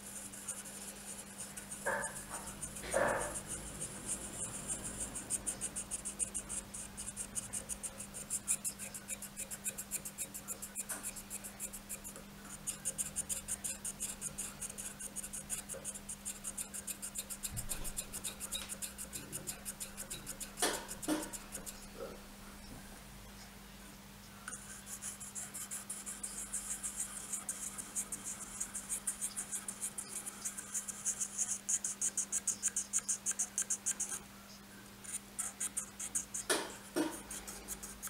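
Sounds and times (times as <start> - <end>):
sharp knock: 36.5 - 37.2.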